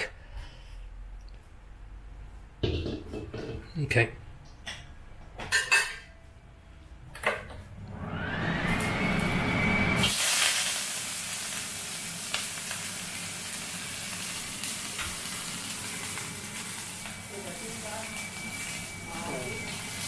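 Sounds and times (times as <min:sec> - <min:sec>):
rising whine: 0:07.7 - 0:10.1
cabbage sizzling in a wok: 0:09.9 - 0:20.0.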